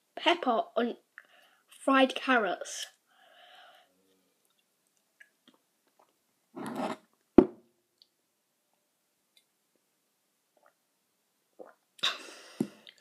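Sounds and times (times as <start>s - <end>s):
mug knock: 7.4s - 7.6s.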